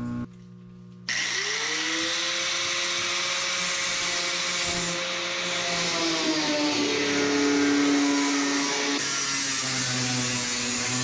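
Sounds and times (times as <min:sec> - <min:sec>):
angle grinder whining: 0:01.1 - 0:11.0.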